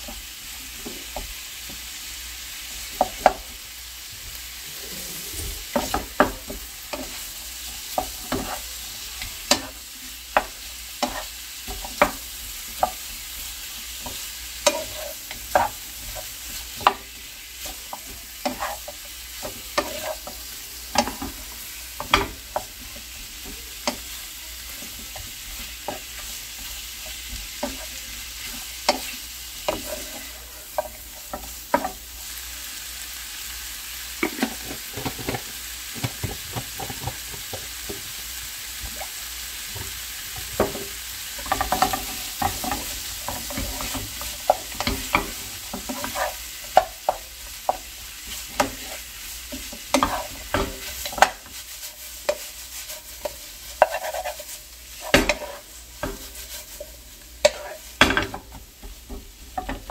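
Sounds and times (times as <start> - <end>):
food sizzling in frying pan: 0.0 - 59.9
wooden spatula knocking pan: 2.9 - 3.5, 5.7 - 7.2, 9.4 - 13.2, 13.9 - 32.0, 39.7 - 51.6, 55.0 - 56.5, 57.4 - 59.9.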